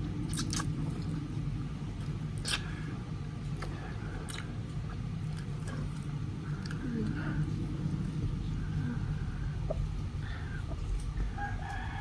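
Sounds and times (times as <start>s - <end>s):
low background rumble: 0.0s - 12.0s
wet eating slurps and smacks: 0.2s - 1.3s, 2.0s - 2.9s.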